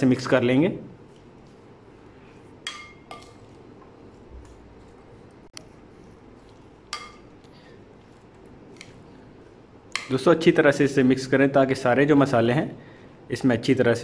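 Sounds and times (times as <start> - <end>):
spoon clinking against glass bowl: 2.6 - 3.5.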